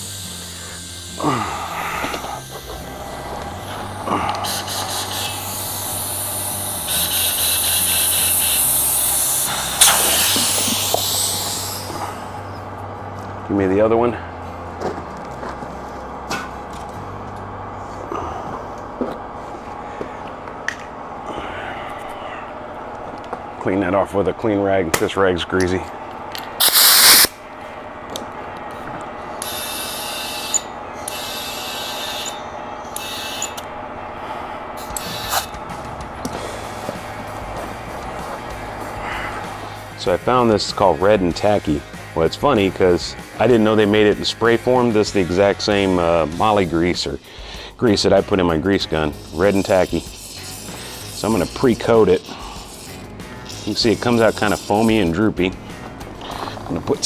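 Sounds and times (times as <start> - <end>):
compressed air hissing: 0.0 - 12.7, 26.4 - 27.4, 29.2 - 57.0
rag rubbing on metal: 2.2 - 12.0, 47.9 - 57.0
loud burst of noise: 26.6 - 27.4.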